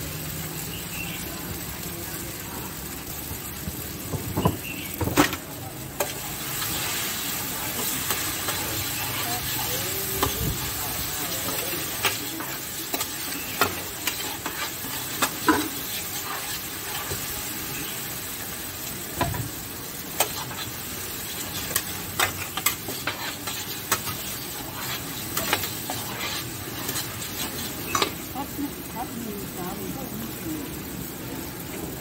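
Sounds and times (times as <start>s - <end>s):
noodles sizzling in pan: 0.0s - 32.0s
metal spatulas scraping pan: 7.7s - 17.2s, 20.2s - 28.2s.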